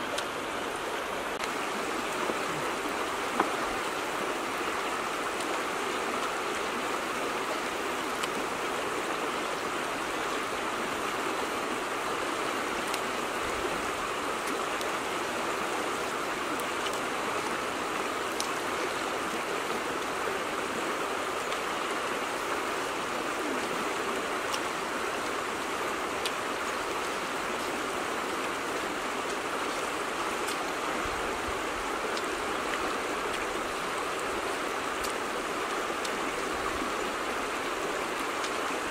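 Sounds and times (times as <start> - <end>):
river water rushing past rocks: 0.0 - 38.9.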